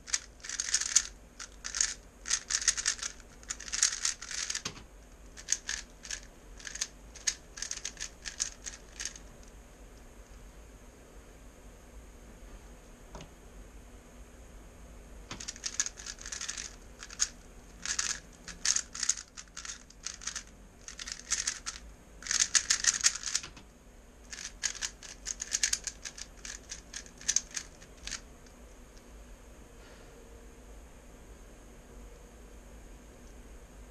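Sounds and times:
puzzle cube clicking: 0.1s - 4.8s, 5.4s - 9.2s, 15.3s - 23.6s, 24.3s - 28.2s.

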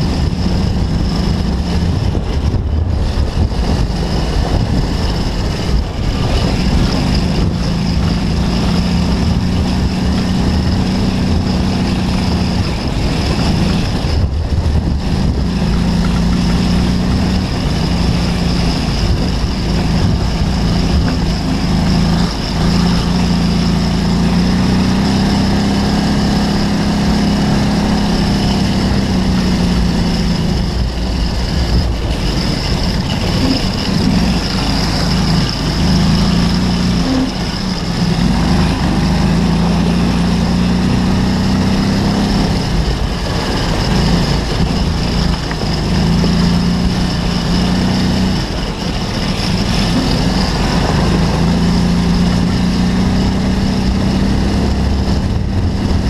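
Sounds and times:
buggy engine revving under load: 0.0s - 56.0s.

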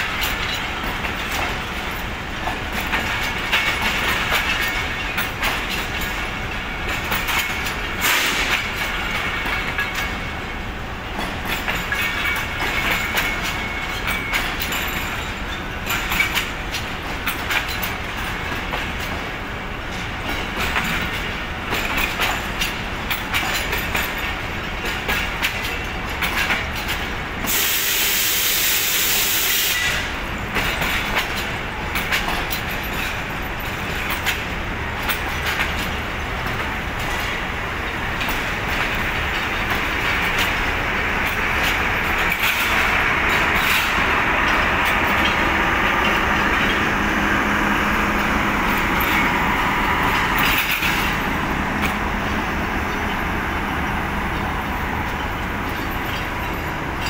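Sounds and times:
train wheels clicking over rail joints: 0.0s - 57.0s
loud hiss: 27.5s - 30.1s.

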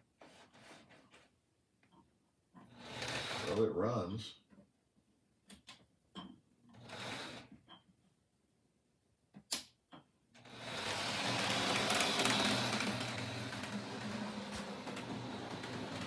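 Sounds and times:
model locomotive whirring and rattling: 2.8s - 3.6s, 10.4s - 16.0s.

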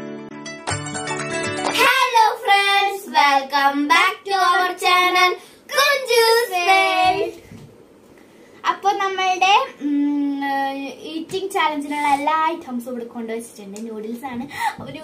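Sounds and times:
children singing: 5.7s - 7.4s.

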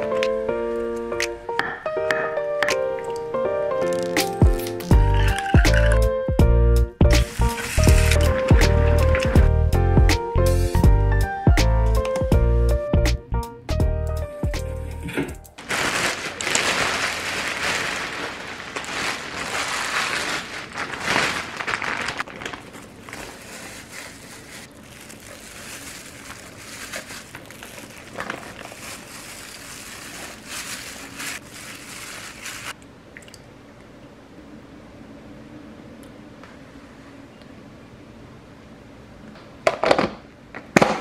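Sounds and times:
plastic bag crinkling: 7.2s - 9.5s, 15.6s - 32.8s.

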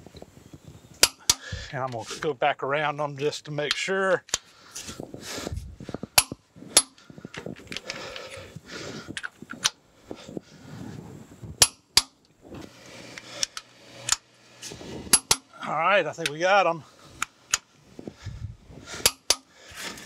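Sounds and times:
torque wrench clicking: 13.1s - 15.5s, 19.0s - 19.5s.

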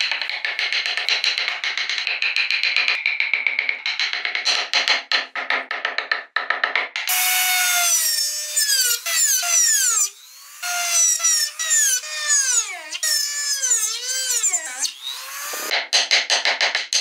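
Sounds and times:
rotary tool drilling into wood: 7.1s - 15.7s
carving tool tapping: 13.6s - 17.0s.

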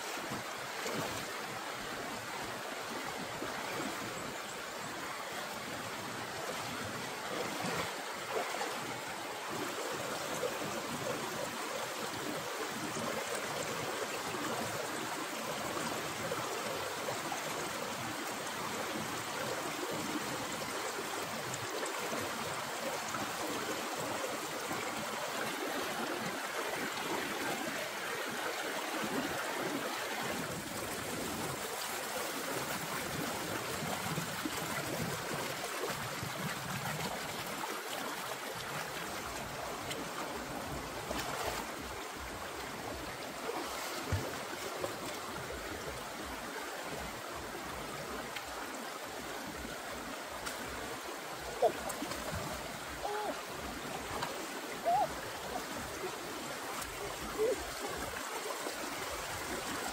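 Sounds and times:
river water rushing: 0.0s - 59.9s.

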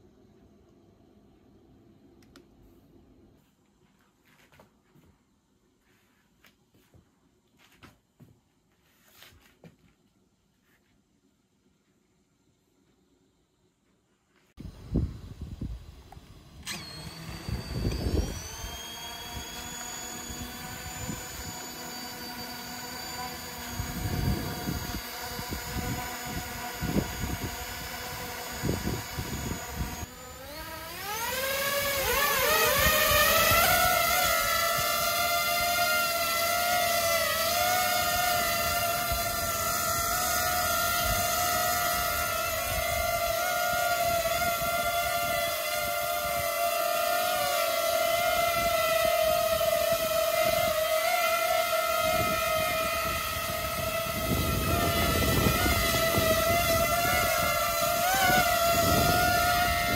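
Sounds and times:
drone motors whining: 14.6s - 59.9s.

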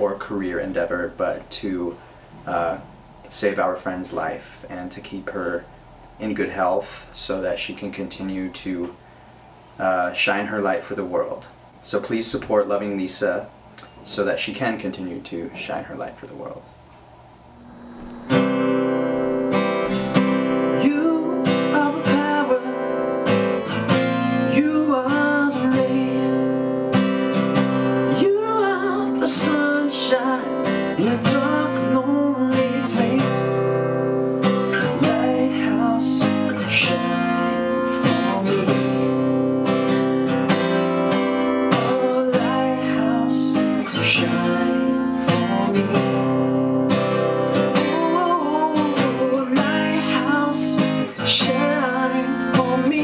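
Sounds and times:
acoustic guitar strumming: 17.4s - 53.0s
man singing: 20.6s - 23.0s, 24.5s - 26.5s, 28.1s - 33.9s, 34.8s - 39.2s, 41.7s - 46.3s, 47.8s - 53.0s.

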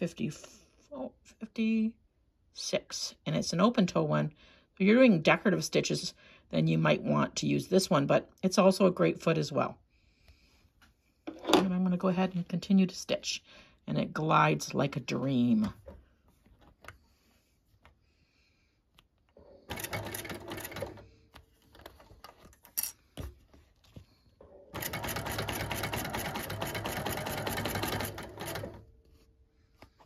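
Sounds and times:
sewing machine stitching: 19.7s - 21.1s, 24.7s - 28.8s.

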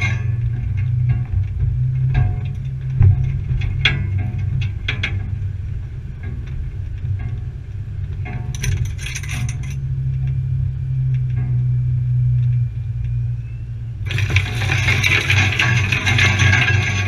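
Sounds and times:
rattling clatters: 0.0s - 10.4s, 14.0s - 17.0s
engine low drone: 0.0s - 17.0s.

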